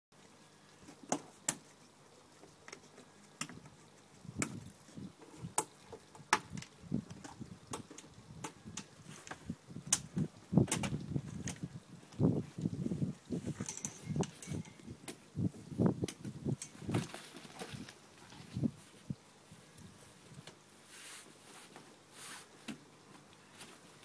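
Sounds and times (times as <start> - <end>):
sharp clicks and knocks: 5.4 - 11.6.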